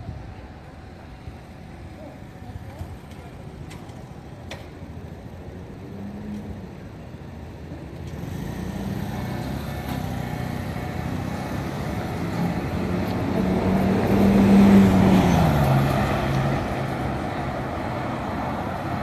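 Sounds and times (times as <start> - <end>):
street traffic noise: 0.0 - 19.0
vehicle passing close by: 8.2 - 19.0.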